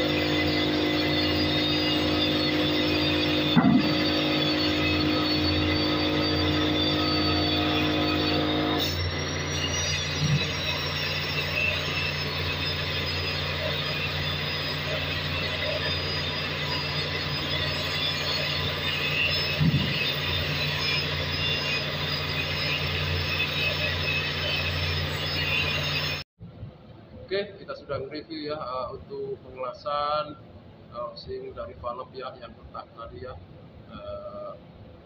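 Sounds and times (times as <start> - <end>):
low drone of machinery: 0.0 - 35.0
loud knocks: 3.5 - 4.1.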